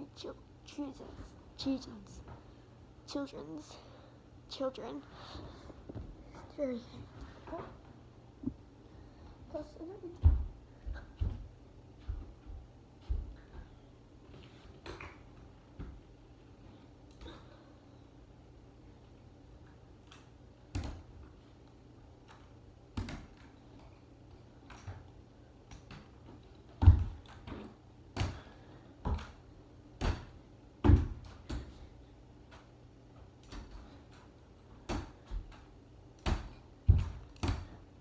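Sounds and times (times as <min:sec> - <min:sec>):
footsteps: 0:10.0 - 0:15.0.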